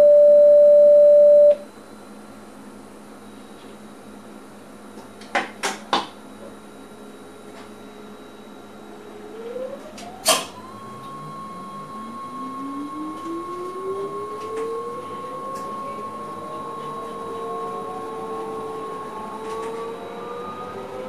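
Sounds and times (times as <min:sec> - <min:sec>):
steady high tone: 0:00.0 - 0:01.6, 0:08.9 - 0:21.0
train traction drive whine: 0:06.7 - 0:21.0.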